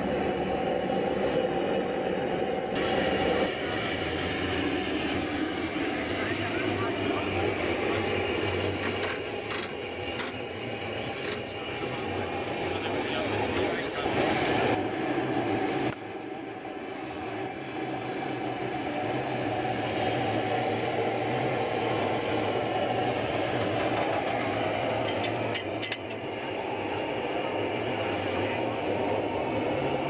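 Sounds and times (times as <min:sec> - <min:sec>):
tractor engine running: 0:08.6 - 0:11.6.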